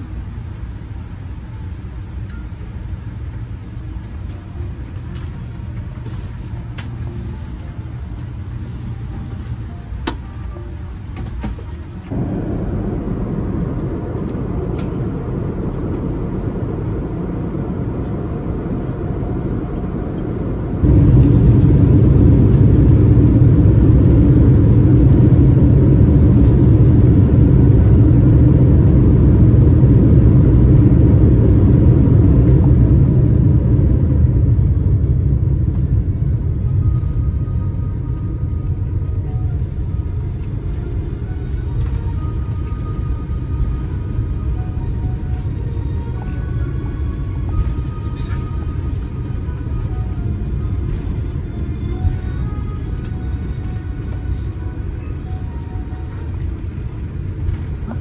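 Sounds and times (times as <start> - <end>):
airliner cabin low rumble: 0.0 - 58.0.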